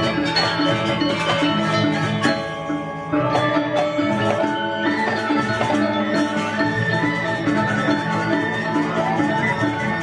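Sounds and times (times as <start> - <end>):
hand drums: 0.0 - 10.0
metallophones ringing: 0.0 - 10.0
bamboo flutes: 2.2 - 10.0.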